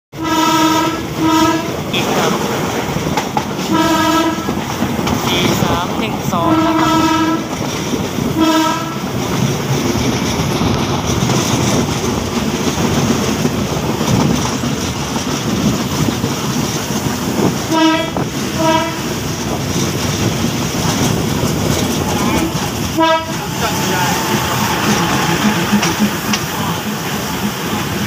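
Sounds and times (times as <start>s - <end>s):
train horn: 0.1s - 2.4s, 3.6s - 4.6s, 6.4s - 7.6s, 8.3s - 9.2s, 17.7s - 19.2s, 22.2s - 27.1s
train rumble and wheel clatter: 0.1s - 28.0s.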